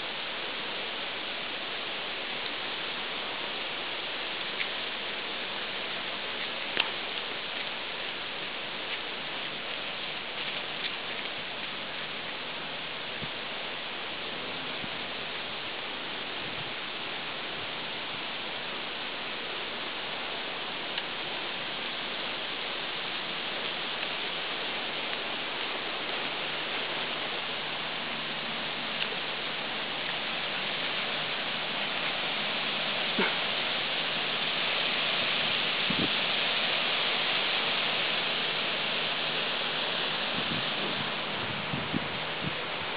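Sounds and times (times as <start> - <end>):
steady hiss: 0.0 - 42.9
faint clicks: 6.3 - 12.2, 29.0 - 29.2.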